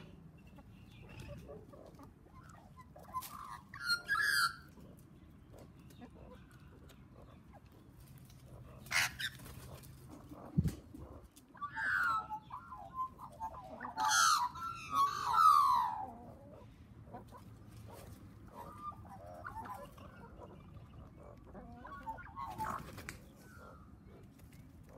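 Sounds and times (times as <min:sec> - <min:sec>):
birds calling: 0:00.0 - 0:24.9
bird warbling: 0:08.7 - 0:16.7, 0:18.0 - 0:24.2.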